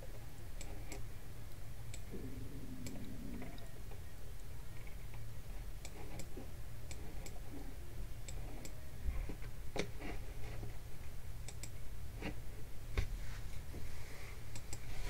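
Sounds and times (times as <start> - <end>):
low hum: 0.0 - 15.0
computer mouse clicking: 0.6 - 2.2, 2.8 - 7.4, 8.2 - 10.2, 11.4 - 12.4, 14.5 - 14.9.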